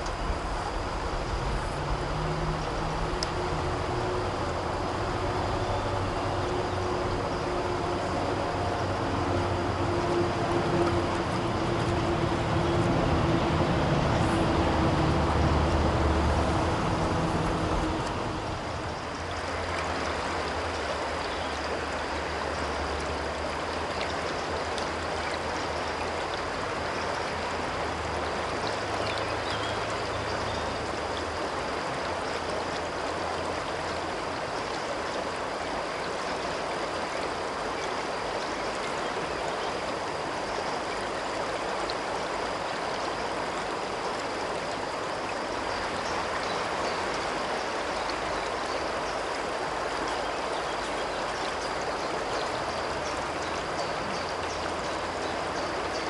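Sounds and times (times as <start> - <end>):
low droning hum: 0.0 - 20.8
river water rushing: 0.0 - 56.0.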